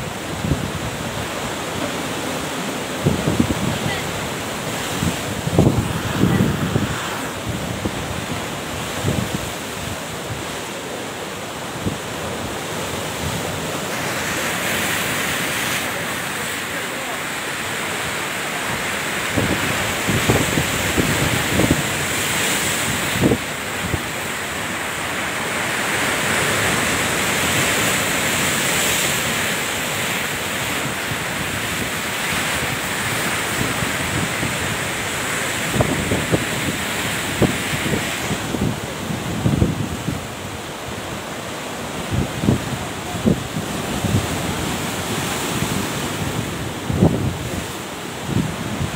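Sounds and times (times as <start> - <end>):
surf and breaking waves: 0.0 - 48.9
wind buffeting microphone: 2.9 - 10.5, 30.8 - 41.1, 41.9 - 48.9.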